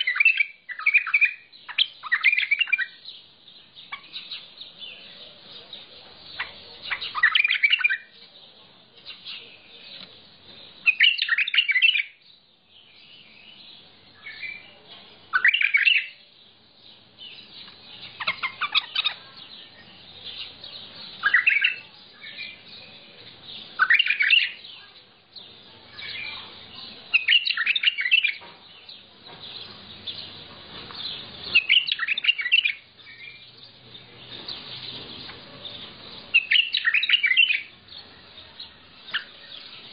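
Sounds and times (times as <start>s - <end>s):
bird twittering: 0.0s - 8.1s, 10.7s - 12.2s, 15.3s - 16.2s, 17.2s - 24.8s, 25.4s - 38.0s, 39.0s - 39.9s
bird song phrases: 0.0s - 39.9s.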